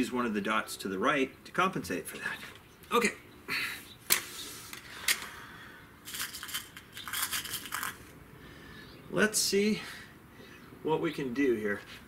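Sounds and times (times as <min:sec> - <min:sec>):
pellets clinking in metal tin: 0:06.1 - 0:08.0.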